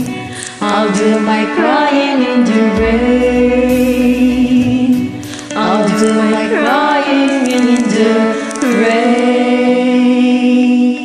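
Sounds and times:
karaoke backing music: 0.0 - 11.0
person singing wordless notes: 0.4 - 11.0.

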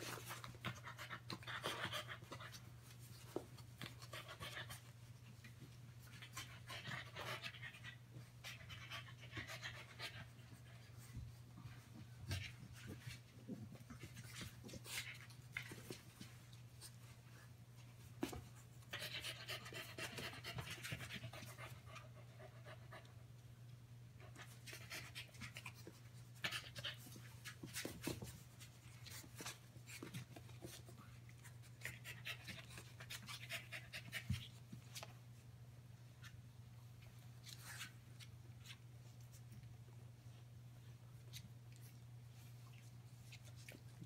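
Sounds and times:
paws and claws scuffling on floor: 0.0 - 6.8, 9.5 - 19.0, 24.3 - 35.5, 36.2 - 44.0
puppy noises: 0.0 - 17.0.

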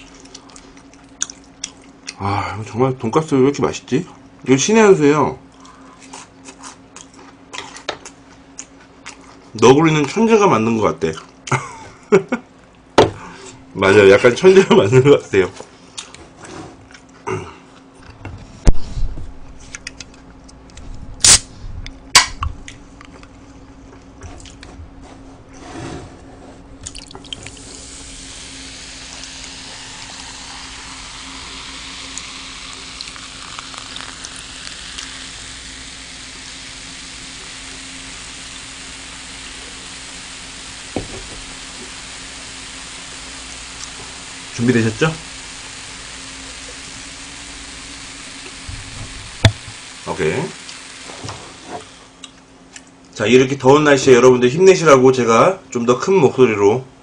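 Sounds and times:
cola pouring into plastic cup: 26.8 - 48.7
carbonation fizzing: 26.8 - 52.1.

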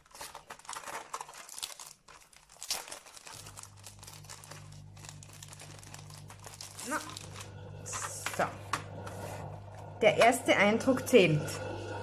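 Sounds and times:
plastic film crinkling: 0.0 - 9.9
dishwasher running: 3.4 - 12.0.

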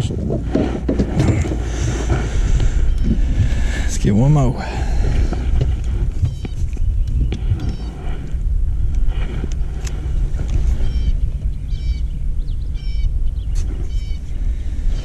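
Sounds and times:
steady low rumble: 0.0 - 15.0
bird calling: 1.3 - 3.8, 4.8 - 8.5, 9.6 - 15.0.

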